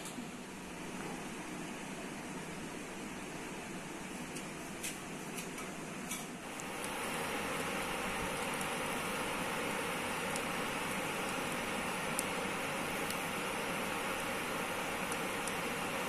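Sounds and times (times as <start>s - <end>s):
steady hiss: 6.4s - 16.0s.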